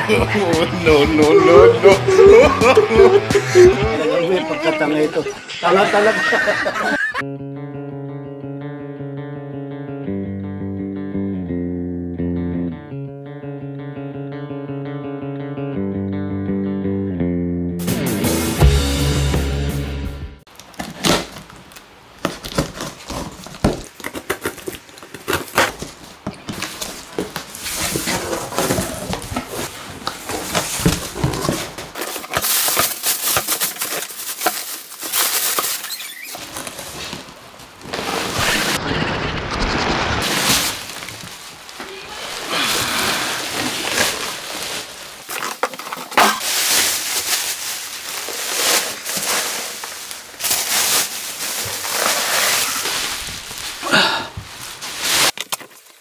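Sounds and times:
bubble wrap crinkling: 20.5 - 56.0
cardboard flaps scraping: 20.6 - 53.8
box cutter slitting tape: 22.3 - 25.9.

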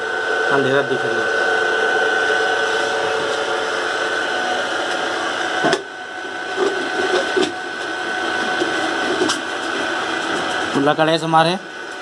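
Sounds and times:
machine motor whine: 0.0 - 12.0.

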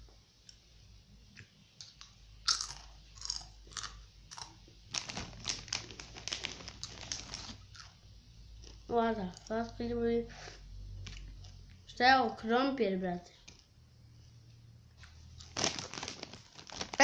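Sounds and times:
chewing crunchy corn chips: 2.4 - 8.0.

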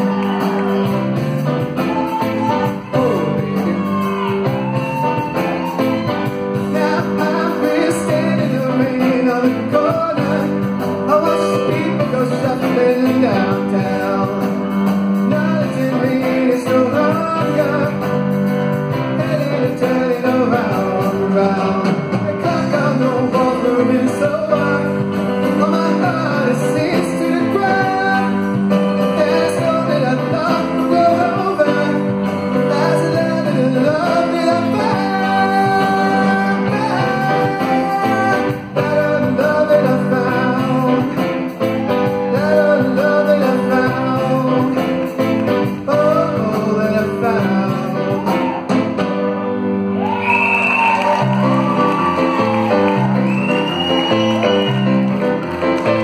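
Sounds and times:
live rock band playing: 0.0 - 56.0
lead vocal singing: 1.9 - 5.3, 6.4 - 18.1, 19.2 - 41.3, 41.9 - 45.0.

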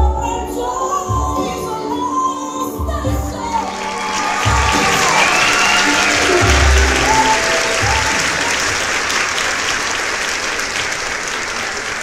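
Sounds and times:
music: 0.0 - 9.3
crowd applauding: 3.6 - 12.0.

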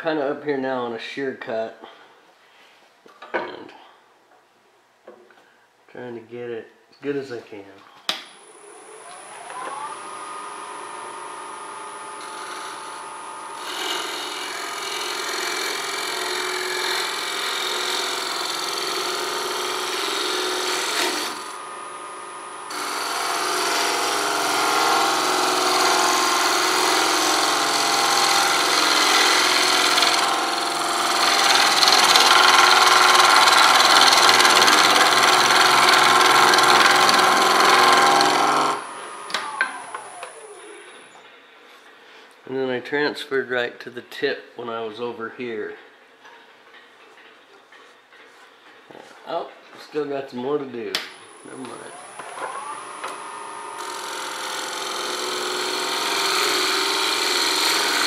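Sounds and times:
wood lathe motor whine: 8.4 - 41.0, 51.3 - 58.0
gouge cutting wood shavings hissing: 25.0 - 38.8.

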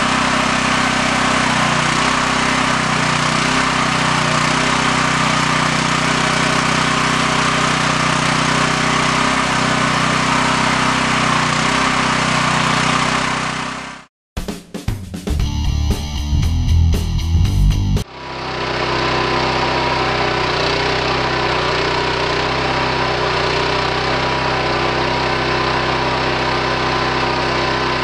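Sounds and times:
small gasoline engine running: 0.0 - 14.1, 18.0 - 28.0.

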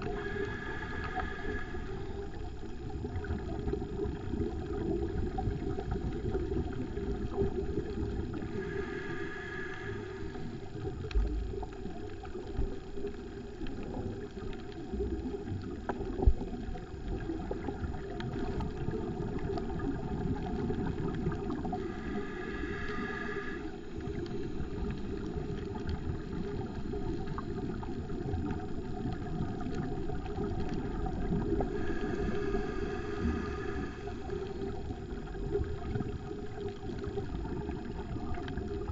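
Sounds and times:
diver breathing through regulator: 0.0 - 2.5, 7.9 - 10.8, 21.4 - 27.6, 31.1 - 35.1
underwater low rumble: 0.0 - 38.9.

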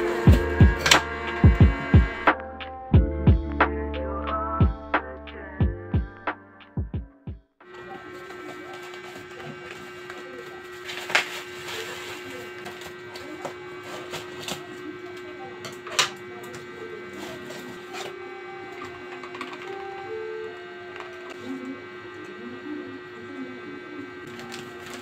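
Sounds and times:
steady low hum: 0.0 - 6.4
cardboard and tape rustling: 8.1 - 14.7.

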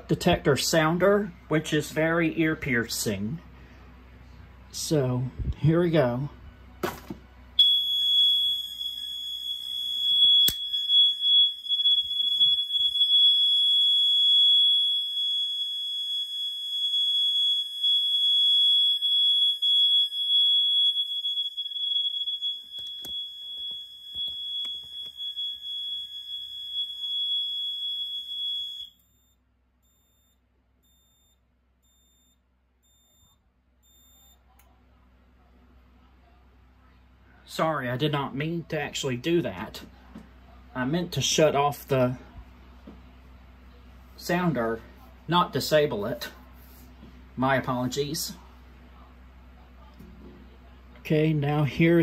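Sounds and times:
high-pitched alarm tone: 7.6 - 29.0.

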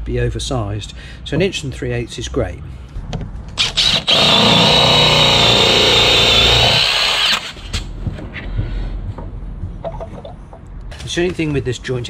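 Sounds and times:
power drill boring into wood: 3.6 - 7.8.

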